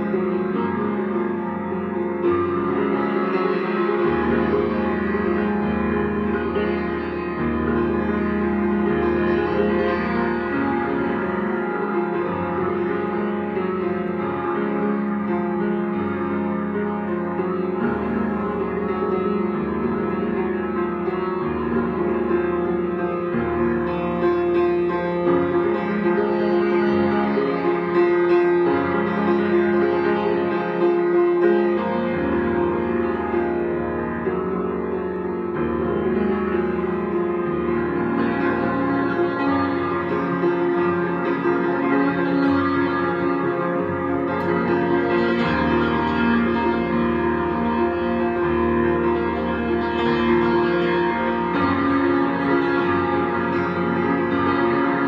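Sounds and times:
grand piano chords: 0:00.0 - 0:55.0.

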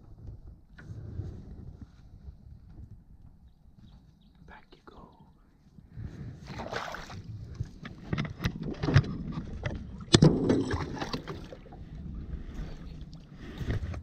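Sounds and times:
wind rumble on microphone: 0:00.0 - 0:04.6, 0:05.2 - 0:14.0
gear clicks and knocks: 0:07.8 - 0:11.4.

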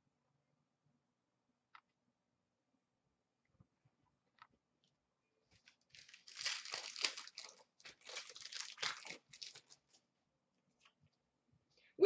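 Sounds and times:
wrapper crinkling as torn open: 0:05.5 - 0:10.0.

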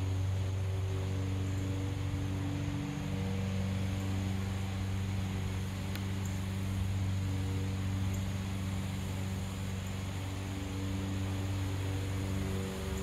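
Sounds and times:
low machine hum with tones: 0:00.0 - 0:13.0
light click: 0:05.9 - 0:06.4.

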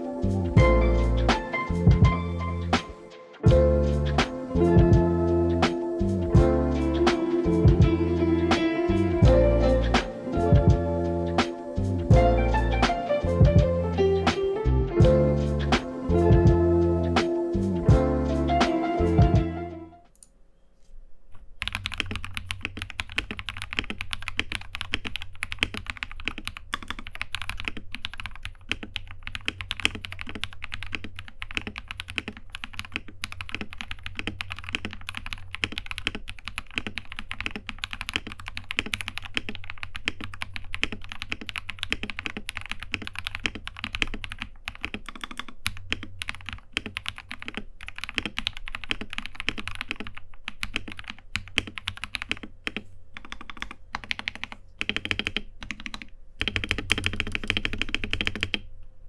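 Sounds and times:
mechanical keyboard typing: 0:21.6 - 0:58.7.

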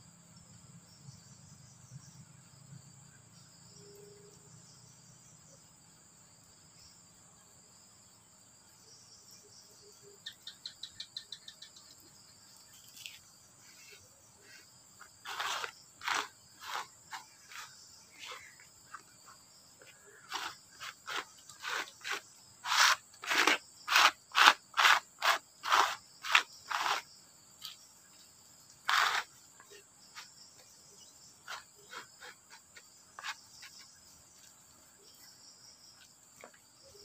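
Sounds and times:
high insect drone: 0:00.0 - 0:37.0
hand tool scraping wood: 0:12.8 - 0:27.9, 0:28.7 - 0:34.6.

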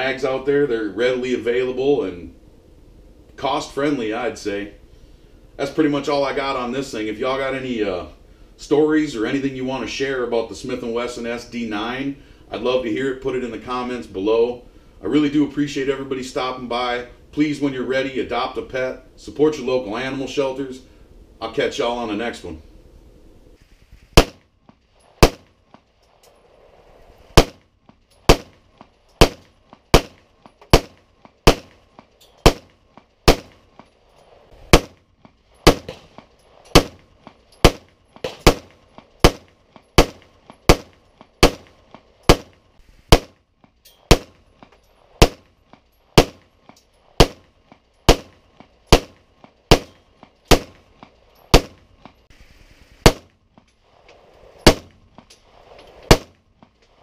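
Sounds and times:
pistol shots: 0:24.2 - 0:24.4, 0:25.2 - 0:25.6, 0:27.4 - 0:27.6, 0:28.3 - 0:31.8, 0:32.4 - 0:33.7, 0:34.7 - 0:35.0, 0:35.6 - 0:43.4, 0:44.1 - 0:44.4, 0:45.2 - 0:45.5, 0:46.2 - 0:46.5, 0:47.2 - 0:47.5, 0:48.1 - 0:50.9, 0:51.5 - 0:51.9, 0:53.0 - 0:53.4, 0:54.6 - 0:55.0, 0:56.1 - 0:56.4.

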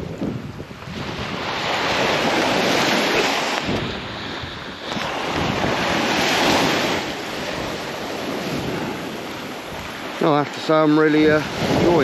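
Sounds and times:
waves breaking on beach: 0:00.0 - 0:12.0
wind buffeting microphone: 0:00.0 - 0:12.0.

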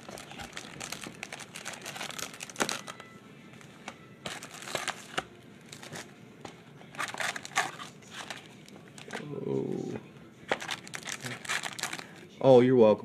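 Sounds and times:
foil card packs crinkling: 0:00.0 - 0:03.2, 0:04.3 - 0:06.1, 0:06.8 - 0:09.3, 0:10.5 - 0:12.2.

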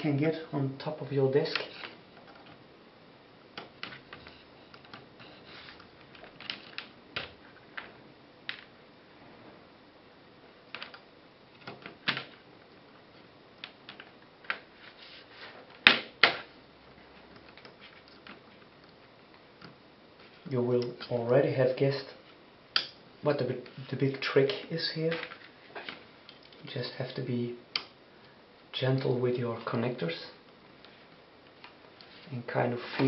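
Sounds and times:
cables moving on desk: 0:01.5 - 0:02.7, 0:03.5 - 0:08.7, 0:10.7 - 0:21.1.

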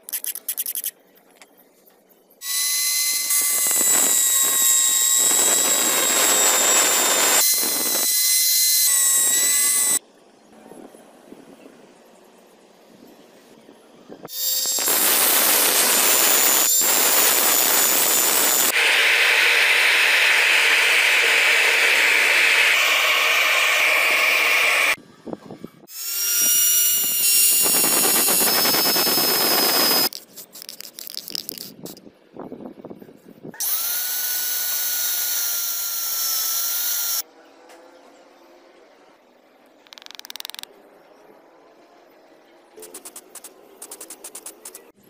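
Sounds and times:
clicks and scrapes: 0:00.0 - 0:01.6, 0:30.0 - 0:32.0
grinder whine: 0:02.4 - 0:10.0, 0:14.3 - 0:25.0, 0:25.9 - 0:30.1, 0:33.6 - 0:37.3
power tool grinding steel: 0:02.4 - 0:10.0, 0:14.3 - 0:25.0, 0:25.9 - 0:30.1.

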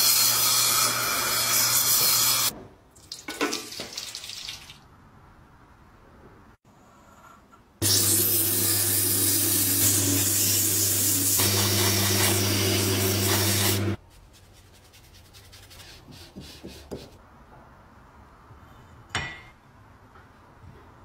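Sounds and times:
sandpaper sanding hiss: 0:09.1 - 0:17.1.

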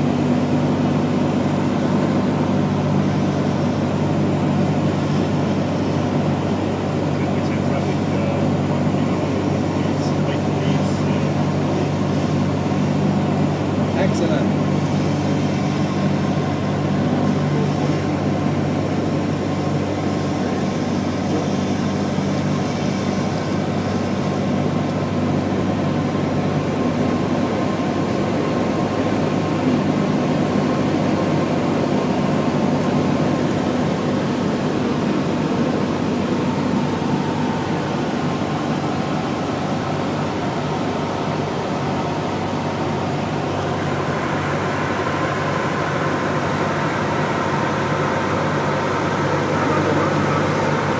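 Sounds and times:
propeller plane engine drone: 0:00.0 - 0:50.9
airflow rushing: 0:33.7 - 0:50.9.

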